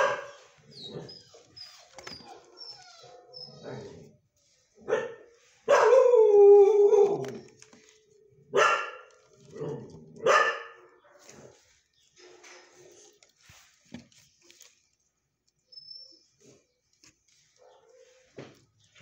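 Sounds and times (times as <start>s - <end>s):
dog barking: 0.0s - 1.1s, 4.8s - 7.2s, 8.5s - 11.6s, 17.6s - 18.4s
dog howling: 5.8s - 7.6s.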